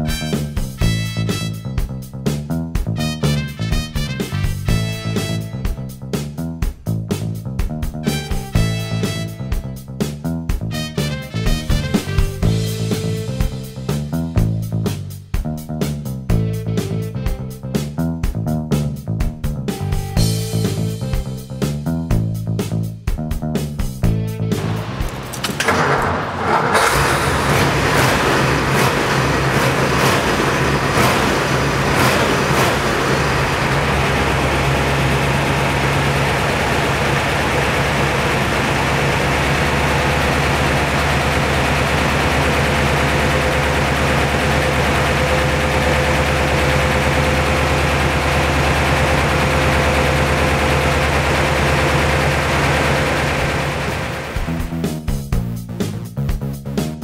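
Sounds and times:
car engine idling: 24.4s - 54.7s
car engine starter cranking: 24.6s - 54.6s.

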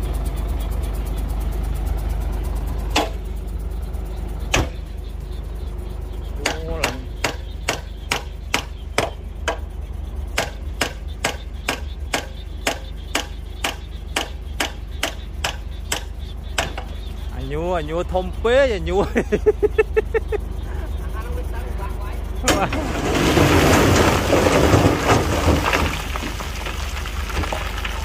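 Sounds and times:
continuous low hum: 0.0s - 28.0s
sharp knocks: 4.5s - 4.8s, 6.4s - 9.7s, 10.4s - 17.0s.

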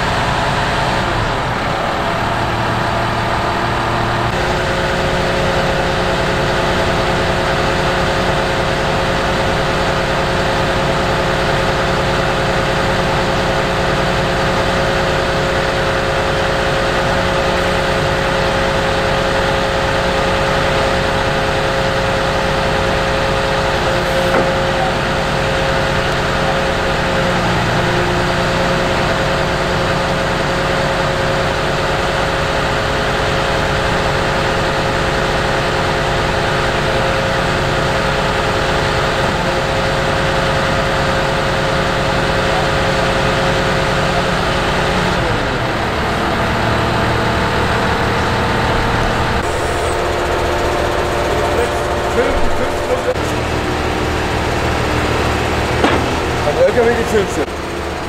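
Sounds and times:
machine engine running: 0.0s - 58.0s.

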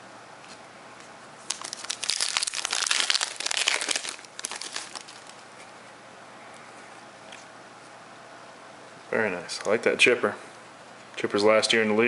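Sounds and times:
plastic wrapper crinkling: 1.4s - 5.4s.

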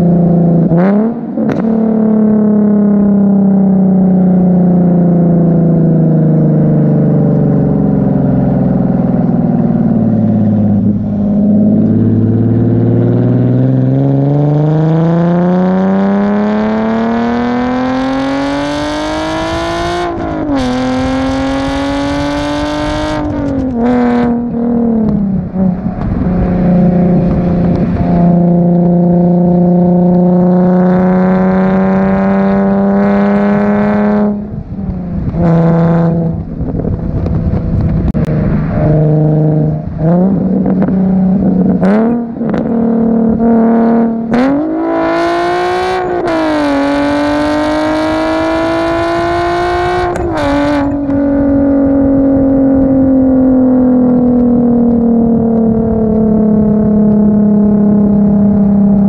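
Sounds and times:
car engine and exhaust: 0.0s - 59.0s.

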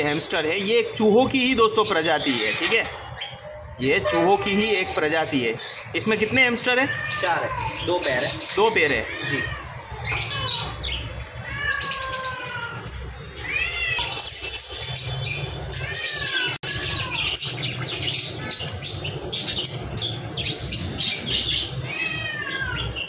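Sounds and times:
cat meowing: 6.6s - 8.0s, 8.7s - 14.5s, 15.7s - 17.4s, 21.4s - 23.0s.

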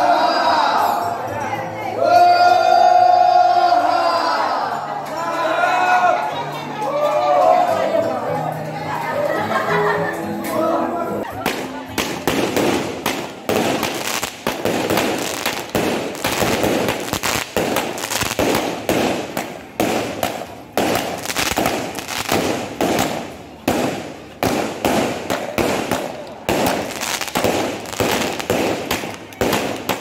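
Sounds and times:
firecrackers banging: 11.2s - 30.0s.

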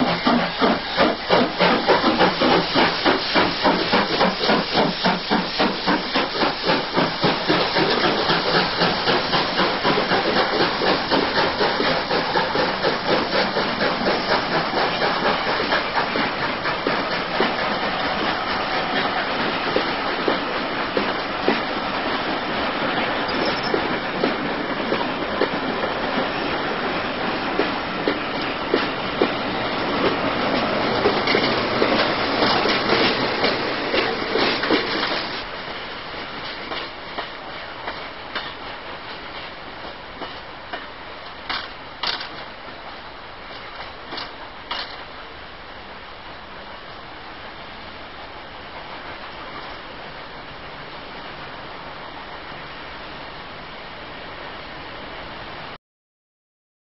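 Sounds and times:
wheels clicking over rail joints: 0.0s - 21.8s, 27.3s - 35.5s, 36.2s - 45.1s
steam hissing: 0.0s - 42.4s
steam locomotive chuffing: 0.0s - 42.5s.

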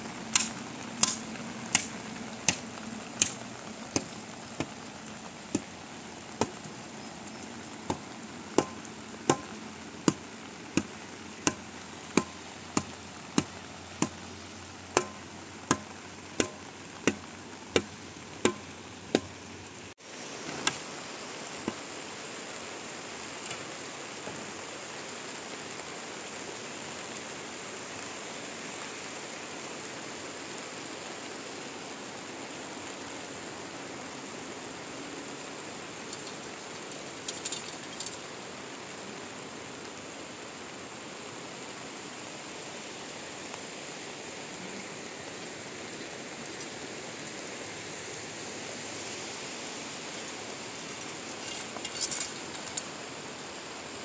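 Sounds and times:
rain hiss: 0.0s - 54.0s
spade striking wet ground: 0.3s - 4.8s, 5.5s - 5.7s, 6.4s - 6.7s, 7.8s - 14.3s, 14.9s - 19.4s, 50.8s - 52.9s.

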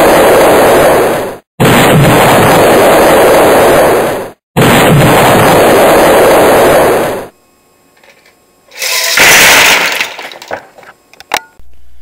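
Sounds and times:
explosion blasts: 0.0s - 7.3s.

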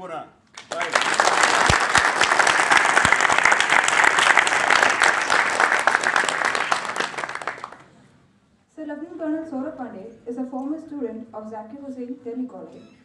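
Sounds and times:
audience applauding: 0.5s - 7.9s.

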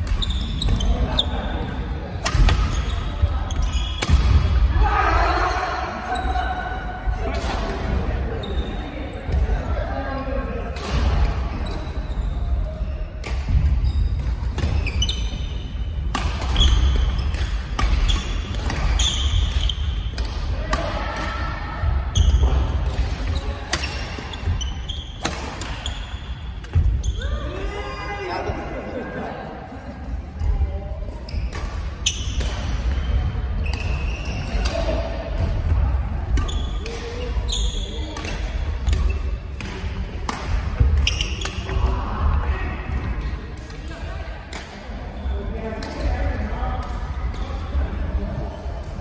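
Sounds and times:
shoe squeaks on wooden floor: 0.1s - 1.0s, 13.8s - 15.7s, 41.0s - 41.7s
sneakers squeaking on wooden floor: 0.1s - 1.4s, 2.6s - 4.1s, 11.6s - 20.1s, 23.3s - 27.4s, 31.2s - 34.6s, 36.4s - 38.2s, 40.8s - 41.8s
badminton rackets hitting shuttlecock: 2.2s - 2.8s, 16.0s - 21.5s, 22.2s - 24.5s, 25.2s - 26.8s, 31.5s - 41.9s, 45.8s - 46.1s
racket hitting shuttlecock: 16.0s - 21.3s, 25.2s - 26.0s, 38.0s - 41.9s.

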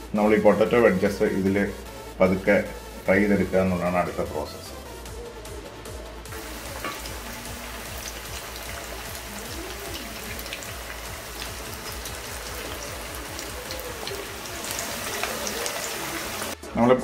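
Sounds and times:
deep-frying sizzle with pops: 6.3s - 16.6s.

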